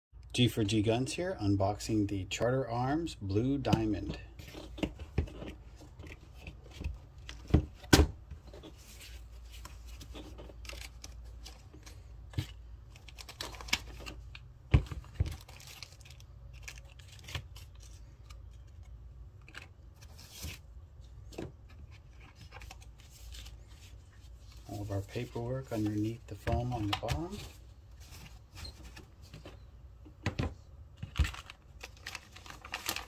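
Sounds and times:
plastic wrap crinkling: 31.0s - 33.0s
foam and paper rustling: 31.1s - 33.0s.

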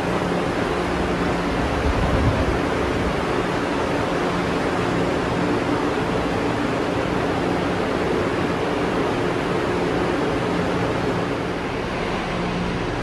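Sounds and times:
rushing ventilation noise: 0.0s - 13.0s
low hum: 9.6s - 13.0s.

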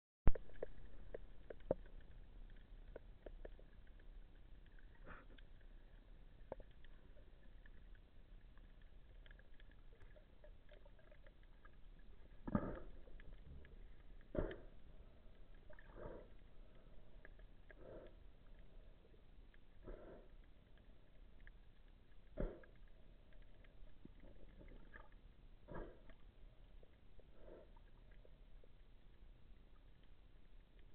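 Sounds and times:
muffled underwater rushes: 0.3s - 19.2s
faint underwater clicks and taps: 0.3s - 30.9s.

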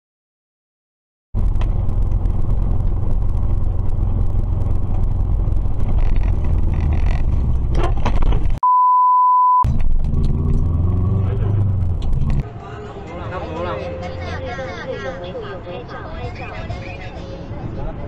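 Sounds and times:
car engine and tyres rumbling: 1.4s - 8.6s, 9.7s - 18.0s
censor bleep: 8.6s - 9.7s.

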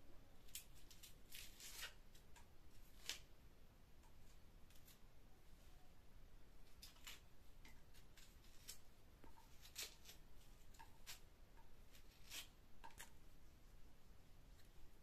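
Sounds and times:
knife scraping onion skin: 0.4s - 2.0s, 2.8s - 3.3s, 6.8s - 7.2s, 7.9s - 11.3s, 11.9s - 13.1s.

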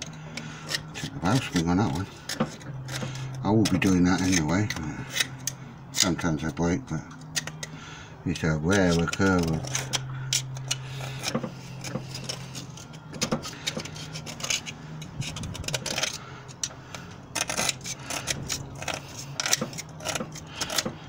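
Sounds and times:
hand tool scraping metal: 0.0s - 6.5s, 7.2s - 21.0s.

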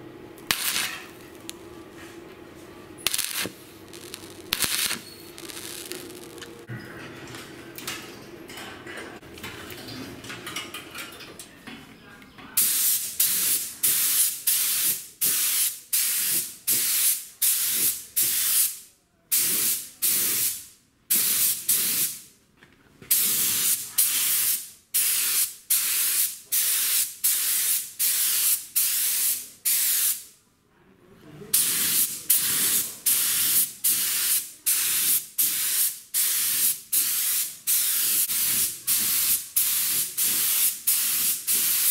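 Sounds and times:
paint spray gun hissing: 3.1s - 6.4s.

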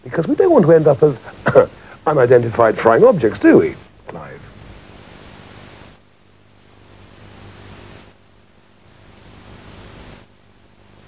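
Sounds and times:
low mains hum: 0.0s - 11.0s
tape hiss: 0.0s - 11.0s.

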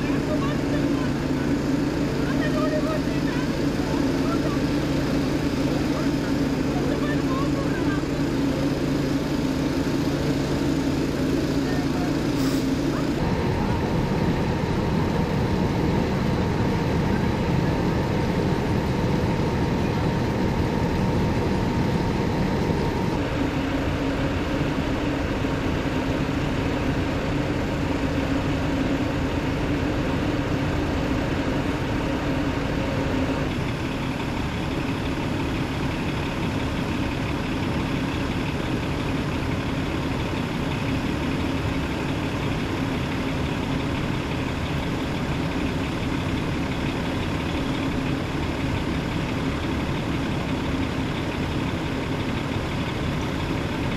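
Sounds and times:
diesel engines idling: 0.0s - 53.9s.

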